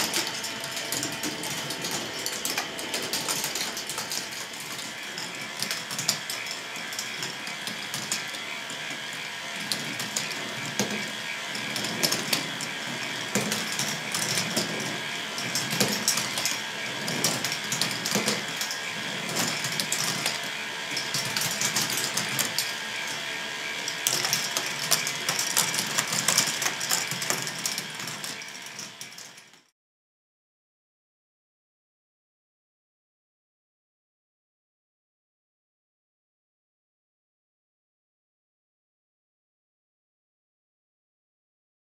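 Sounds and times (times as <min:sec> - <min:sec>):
motor whine: 0:00.0 - 0:29.6
plastic gears and balls clattering: 0:00.0 - 0:29.7.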